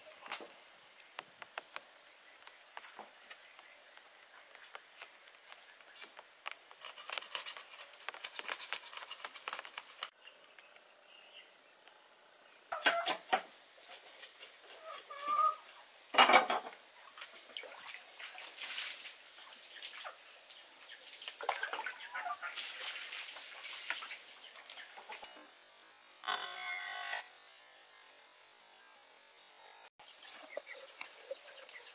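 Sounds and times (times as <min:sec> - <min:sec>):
knife scraping fish scales: 0:06.8 - 0:10.1
water splashing and pouring: 0:17.4 - 0:20.2, 0:21.0 - 0:24.8.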